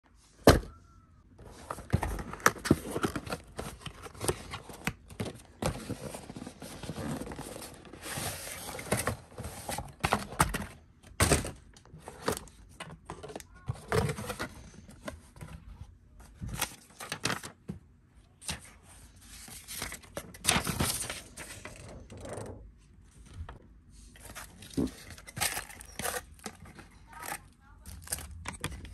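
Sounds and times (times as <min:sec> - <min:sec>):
cardboard packaging rustling: 0:01.5 - 0:10.8, 0:24.2 - 0:28.9.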